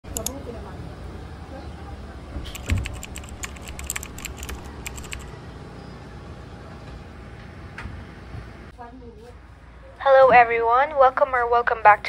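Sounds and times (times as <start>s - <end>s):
rapid light clicking: 2.5s - 5.3s.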